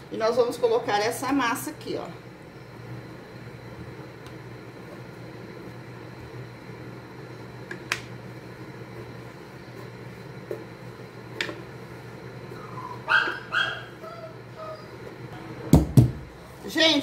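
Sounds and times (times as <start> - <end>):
steady low hum: 0.0 - 17.0
dog yipping: 12.6 - 15.0
dog barking: 13.0 - 14.0.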